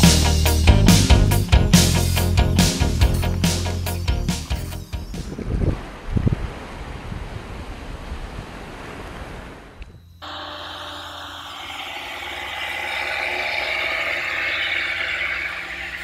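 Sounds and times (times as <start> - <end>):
toy electric motor whine: 10.2 - 16.0.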